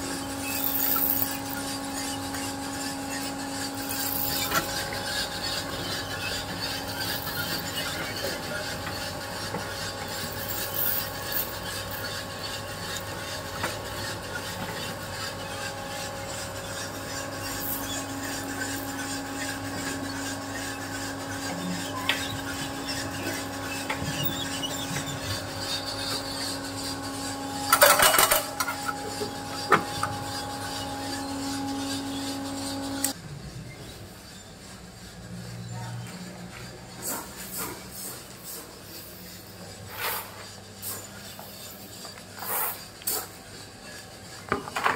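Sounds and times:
machine humming: 0.0 - 33.4
rasping rattling rub: 0.1 - 33.2.

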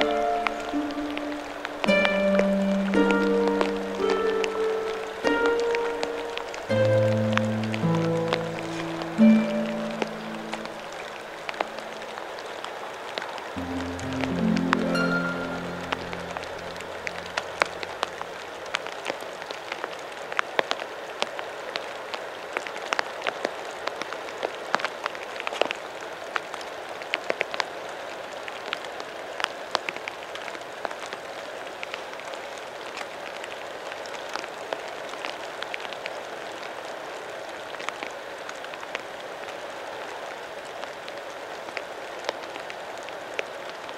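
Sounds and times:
river rushing over weir: 0.0 - 20.1.

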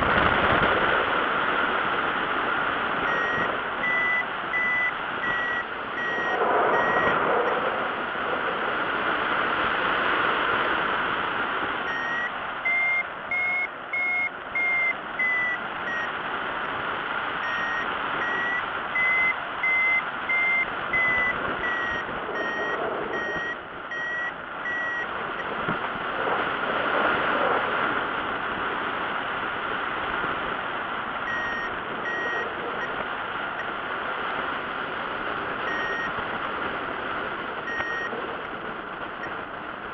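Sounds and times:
wind rushing on microphone: 0.0 - 39.9
variometer beeping: 3.0 - 7.6, 11.8 - 16.7, 17.4 - 25.6, 31.2 - 33.8, 35.6 - 36.4, 37.2 - 39.5.

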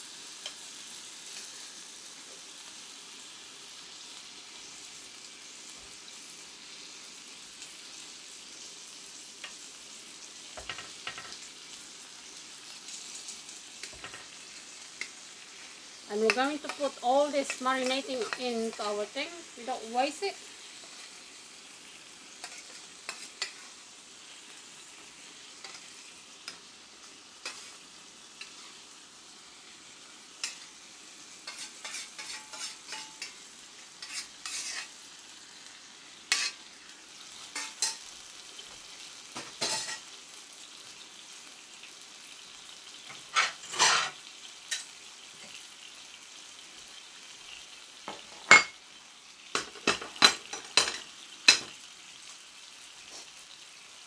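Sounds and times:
meat sizzling in a frying pan: 0.0 - 54.0
metal tongs clattering on pan: 10.6 - 11.4, 13.8 - 14.4, 16.2 - 19.0, 22.4 - 23.7, 31.4 - 33.4, 36.3 - 36.6, 37.5 - 38.1, 39.4 - 40.0, 43.1 - 45.6, 49.5 - 51.8
metal spoon scraping steel plate: 31.5 - 33.4, 34.0 - 34.9, 43.4 - 44.2.

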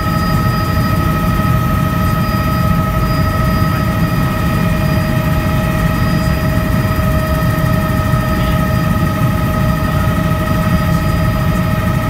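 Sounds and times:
helicopter turbine whine: 0.0 - 12.0
rotor and engine rumble: 0.0 - 12.0.

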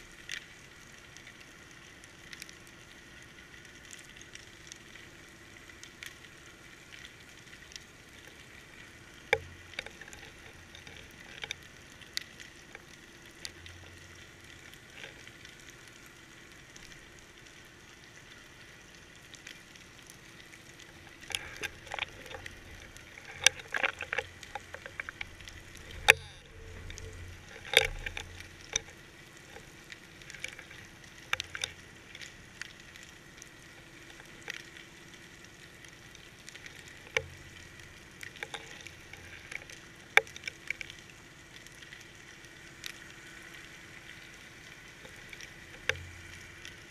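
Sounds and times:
faint steady hiss and hum: 0.0 - 46.9
underwater clicks and crackles: 0.0 - 46.9.

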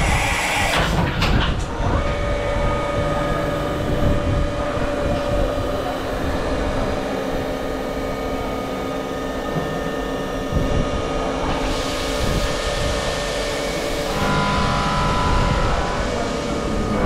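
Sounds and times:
machining spindle whining: 0.0 - 17.0
end mill cutting metal: 11.4 - 17.0.

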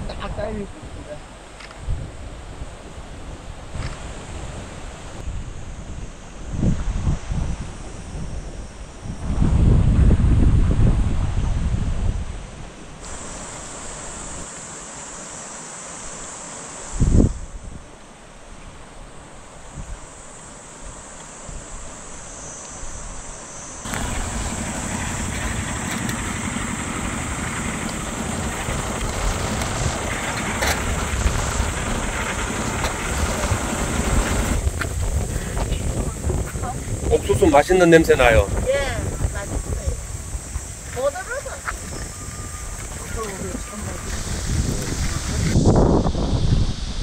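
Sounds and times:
wind buffeting microphone: 0.0 - 14.5, 17.0 - 18.0, 22.9 - 47.0
utility vehicle engine running: 23.8 - 37.6.

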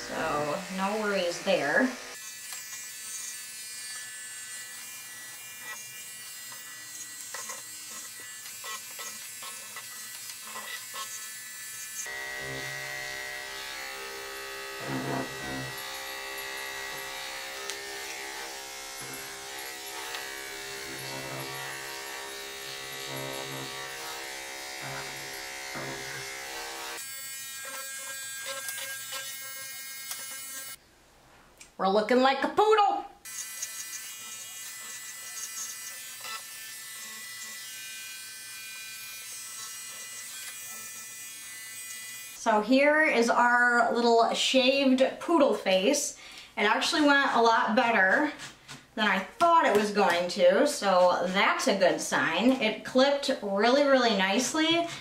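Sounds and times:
electric clippers buzzing: 0.0 - 30.8, 33.2 - 42.5.

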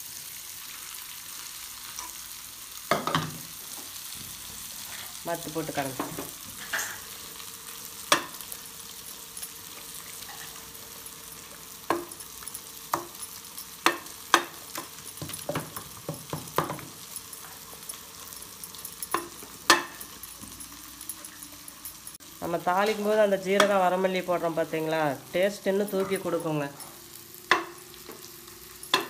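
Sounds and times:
wood knocking against pot: 15.2 - 16.9.

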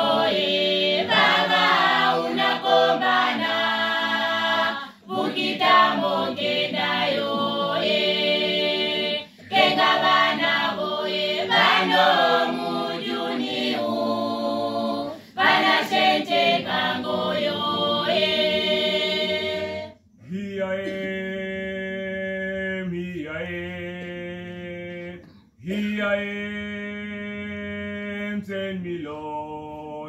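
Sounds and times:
choir singing in harmony: 0.0 - 23.8.

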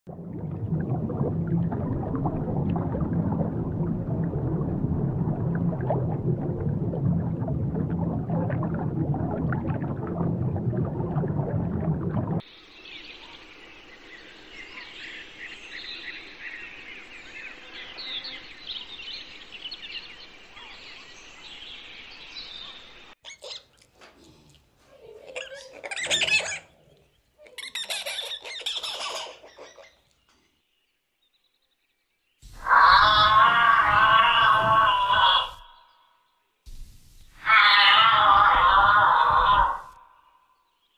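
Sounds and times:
underwater low rumble: 0.1 - 12.4
monkey screeching: 25.2 - 26.7.

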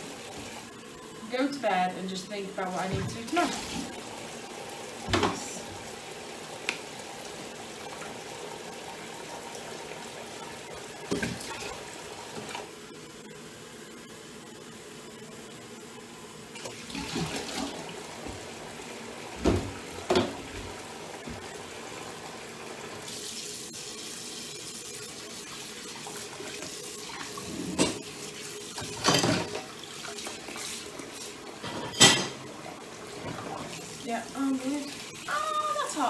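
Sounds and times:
tap water running into sink: 2.7 - 12.7, 16.6 - 36.0
knocks and clatters at sink: 5.0 - 5.5, 19.4 - 20.7, 28.8 - 29.7.

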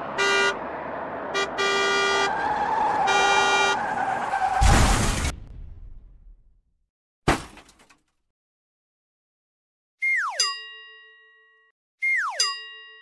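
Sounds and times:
truck horn toots: 0.0 - 4.2.

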